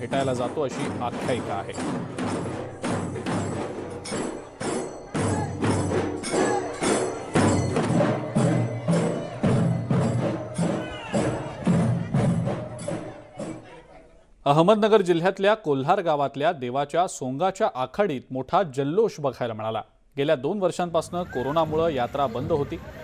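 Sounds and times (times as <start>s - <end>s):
drums beating: 0.0s - 13.9s.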